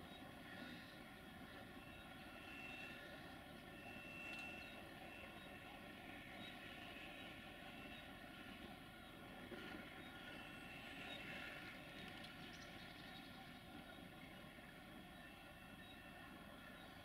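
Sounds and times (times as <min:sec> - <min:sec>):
distant diesel locomotive drone: 0:00.0 - 0:17.0.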